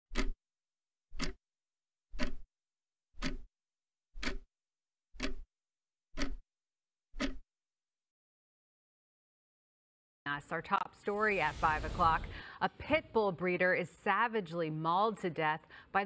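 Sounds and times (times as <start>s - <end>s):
clock ticking: 0.1s - 0.4s, 1.1s - 1.4s, 2.1s - 2.5s, 3.2s - 3.5s, 4.1s - 4.5s, 5.2s - 5.5s, 6.1s - 6.4s, 7.2s - 7.4s.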